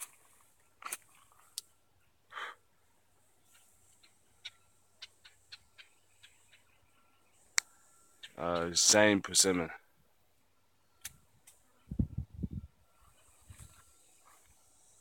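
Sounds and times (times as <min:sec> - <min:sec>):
footsteps in dry undergrowth: 0:00.0 - 0:01.6, 0:13.0 - 0:14.7.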